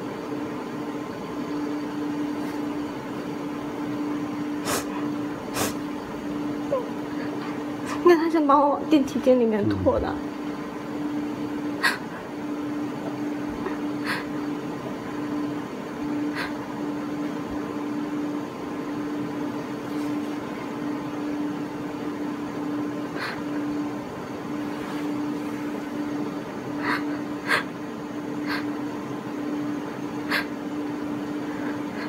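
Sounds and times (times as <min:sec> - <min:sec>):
electrical hum with fan hiss: 0:00.0 - 0:32.0.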